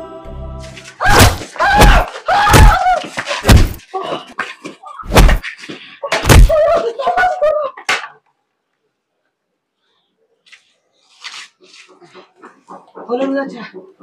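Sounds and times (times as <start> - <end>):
voices crying out: 1.0 - 3.2
heavy slaps and thumps: 1.1 - 6.8.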